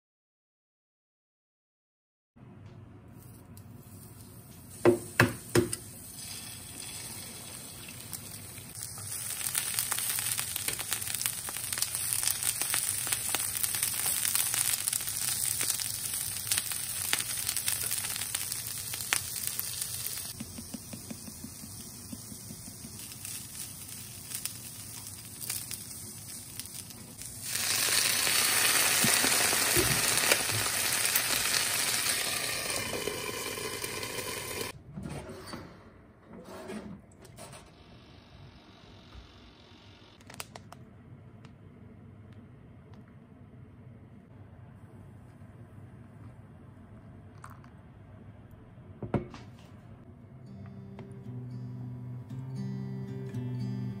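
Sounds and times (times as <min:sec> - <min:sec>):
food sizzling in a frying pan: 0:06.0 - 0:34.8
loud steady hiss in pan: 0:08.6 - 0:34.7.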